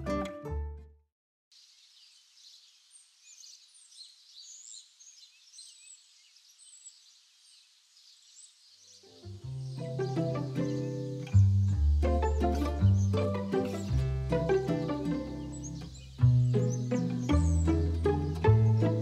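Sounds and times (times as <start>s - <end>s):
plucked-string music: 0.0s - 0.9s, 9.3s - 19.0s
small birds chirping: 1.5s - 19.0s.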